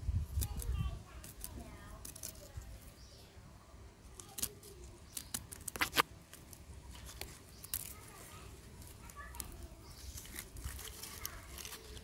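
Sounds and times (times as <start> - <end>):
knife snipping plastic tape: 4.2 - 6.5.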